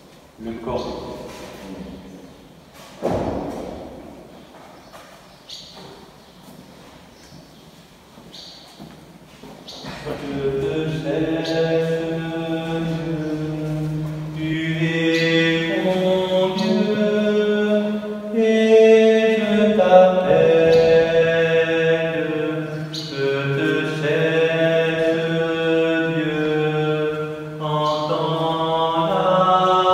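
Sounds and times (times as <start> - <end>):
slow sacred chant: 9.8 - 29.9.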